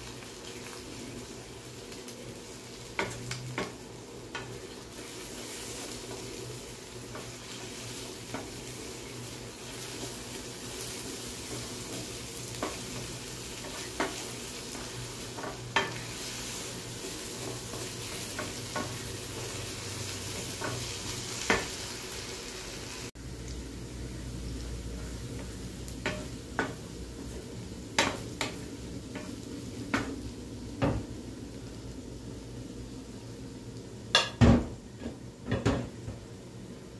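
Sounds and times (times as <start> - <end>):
eggs sizzling in a frying pan: 0.0 - 36.9
spatula tapping a pan: 2.9 - 4.6, 11.5 - 16.1, 17.4 - 19.5, 20.4 - 21.8, 25.4 - 26.9, 28.0 - 30.2, 34.1 - 34.4.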